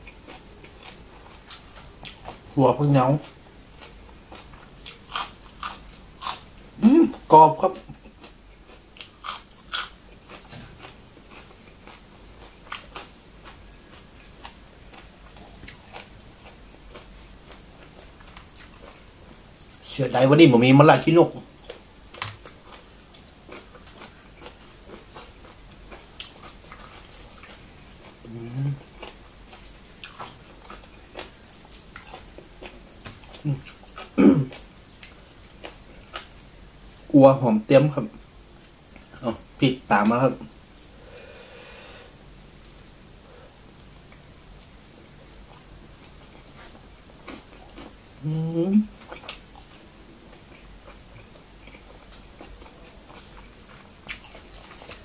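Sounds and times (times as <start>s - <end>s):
person chewing crunchy vegetable: 0.0s - 19.9s, 21.5s - 37.1s, 45.4s - 55.0s
person humming: 6.8s - 7.2s, 28.2s - 28.8s, 48.2s - 48.9s.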